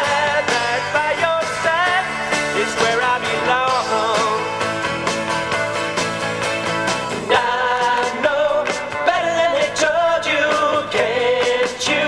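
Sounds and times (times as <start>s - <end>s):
man singing: 0.0s - 4.7s, 7.3s - 12.0s
drums: 0.0s - 12.0s
electric guitar: 0.0s - 12.0s.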